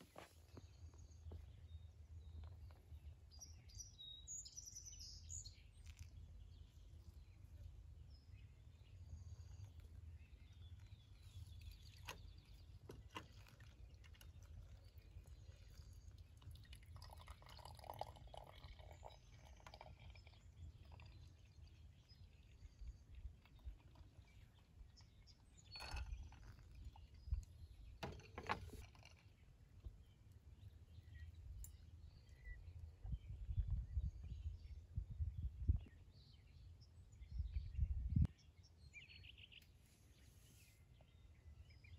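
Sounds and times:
coffee dripping: 5.0 - 32.4
water trickling onto coffee grounds: 5.4 - 7.8, 9.0 - 29.0.

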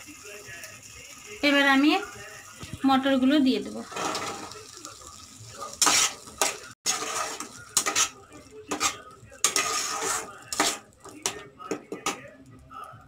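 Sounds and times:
metal spatula scraping pan: 3.7 - 4.6, 5.7 - 11.4.

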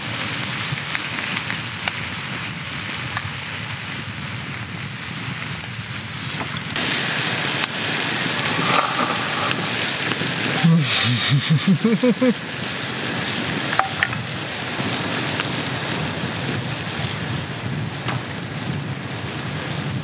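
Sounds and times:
campfire crackling: 0.0 - 20.0
steady rushing noise: 6.2 - 16.6
man making short voiced sounds: 10.6 - 12.4.

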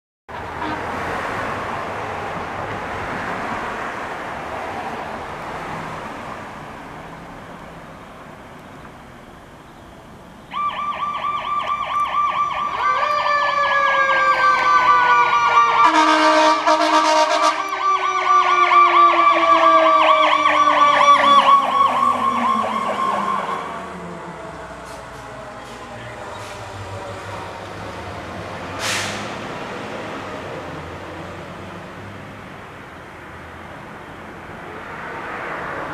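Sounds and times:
road noise: 0.3 - 35.9
air horn blast: 0.5 - 1.0, 15.8 - 17.8
electronic siren warbling: 10.5 - 16.2, 17.6 - 24.1.

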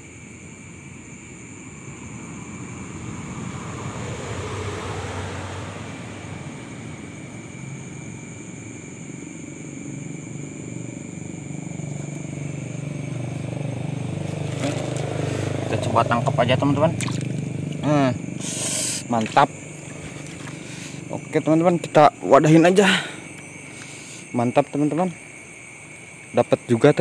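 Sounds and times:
vehicle engine passing by: 1.7 - 8.6, 10.0 - 21.4.

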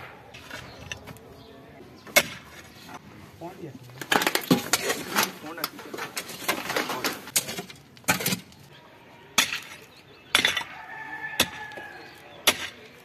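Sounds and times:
pickaxe striking stony soil: 12.4 - 12.8.

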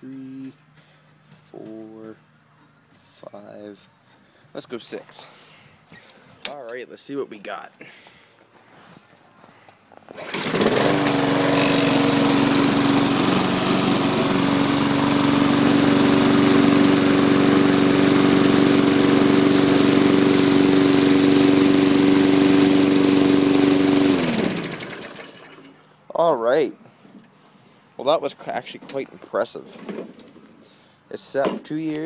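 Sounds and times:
lawn mower engine running: 10.1 - 25.9.

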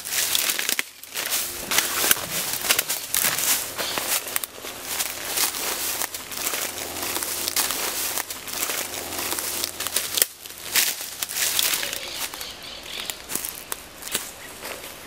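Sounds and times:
dry leaves and twigs crunching: 0.0 - 15.0.

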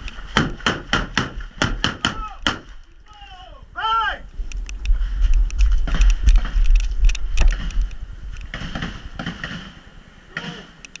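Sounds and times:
wind rumble on microphone: 3.6 - 11.0
rustling noise: 4.3 - 10.0
pistol shots: 8.5 - 9.8.

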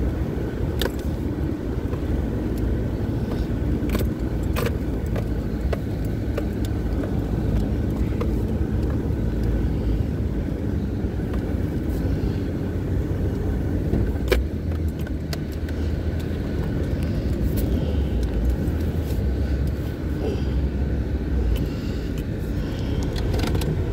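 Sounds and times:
engine and tyre rumble: 0.0 - 23.9
clicks and rattles in cabin: 3.3 - 9.5, 23.0 - 23.9.

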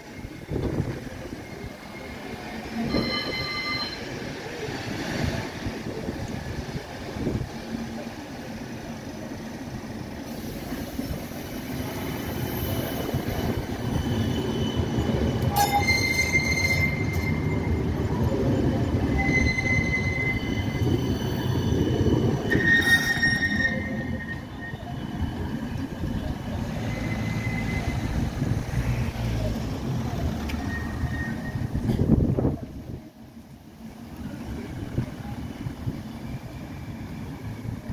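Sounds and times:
tram passing: 0.0 - 37.9
wheel squeal: 2.8 - 4.3, 11.7 - 25.0, 26.7 - 28.5, 30.5 - 31.9.

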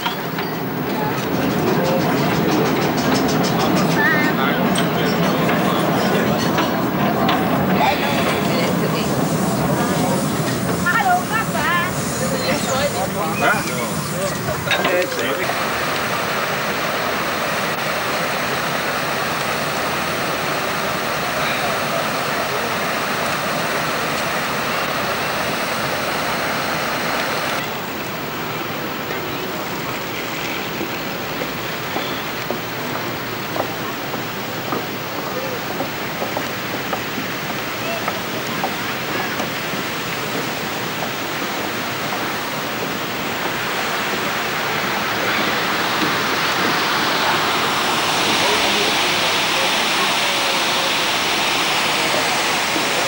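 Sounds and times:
water splashing down cascade: 7.7 - 33.0, 33.7 - 53.0
river water rushing: 36.0 - 53.0.

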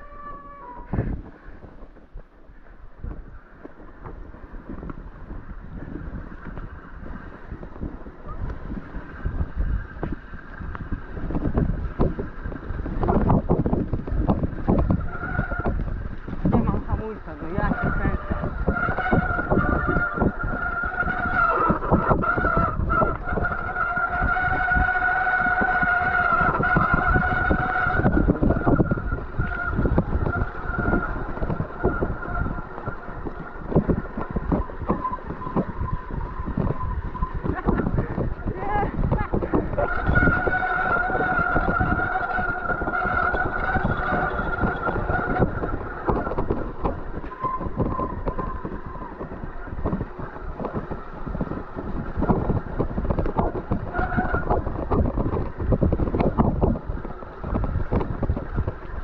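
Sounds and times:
bike rattling on rough trail: 0.0 - 59.0
bike disc brake squealing: 39.8 - 49.4.

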